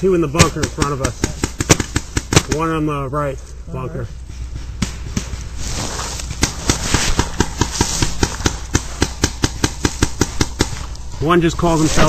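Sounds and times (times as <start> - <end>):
paintball markers firing: 0.3 - 2.7, 6.3 - 11.1.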